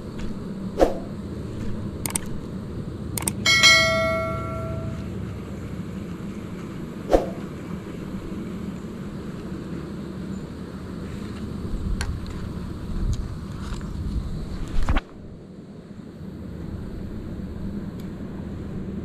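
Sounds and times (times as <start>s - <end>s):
sharp clicks: 2.0s - 2.4s, 3.2s - 3.4s
bright metallic ring: 3.4s - 5.2s.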